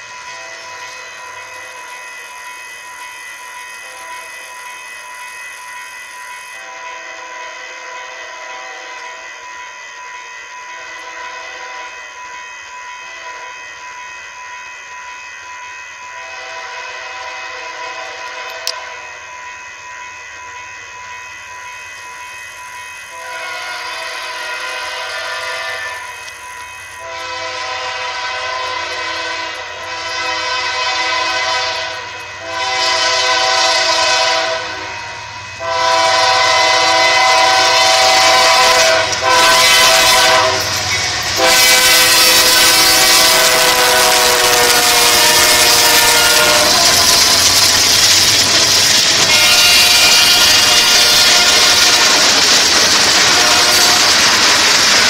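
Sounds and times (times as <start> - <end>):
train passing on rails: 0.0 - 55.0
train air horn blasts: 6.6 - 9.3, 10.8 - 12.0, 16.1 - 19.0, 23.1 - 26.4, 27.0 - 47.7, 49.2 - 52.4, 53.2 - 54.4.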